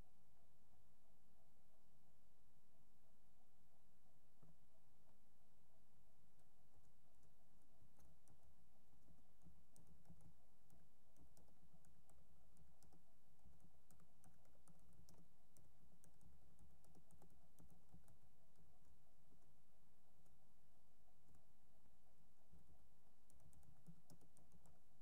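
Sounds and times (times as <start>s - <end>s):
low steady hum: 0.0s - 25.0s
typing on computer keyboard: 6.4s - 20.4s, 22.5s - 25.0s.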